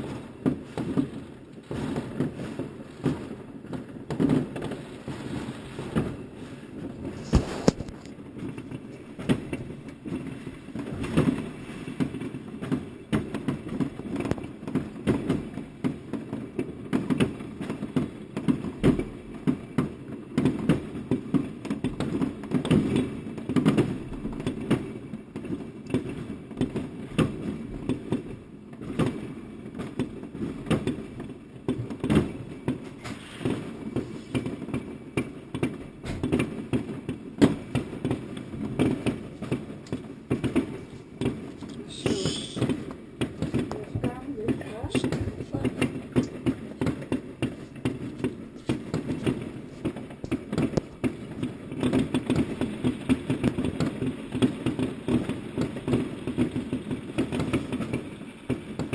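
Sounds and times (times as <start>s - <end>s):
fireworks bangs: 0.0s - 58.9s
constant low rumble: 43.6s - 46.7s.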